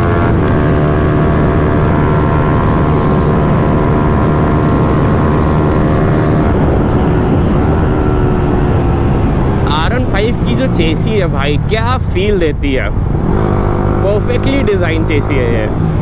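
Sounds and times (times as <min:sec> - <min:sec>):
motorcycle engine at high speed: 0:00.0 - 0:16.0
wind rush: 0:05.0 - 0:16.0.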